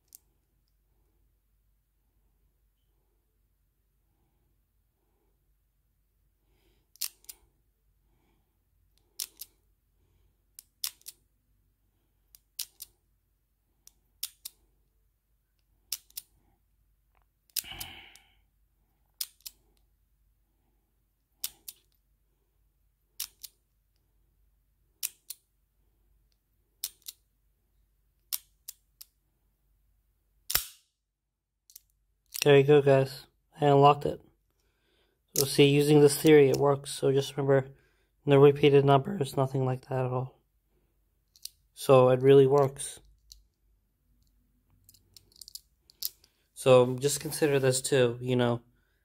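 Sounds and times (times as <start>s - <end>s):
padlock shackle clicking: 6.9s - 7.4s, 8.9s - 9.6s, 10.5s - 11.2s, 12.3s - 13.0s, 13.8s - 14.7s, 15.6s - 16.4s, 17.1s - 17.9s, 19.1s - 19.8s, 21.4s - 22.0s, 23.2s - 23.6s, 25.0s - 25.5s, 26.3s - 27.3s, 28.2s - 29.2s, 30.4s - 30.9s, 31.6s - 32.5s, 41.3s - 41.6s, 44.2s - 46.3s
padlock rattle: 9.0s - 9.6s, 44.2s - 46.3s.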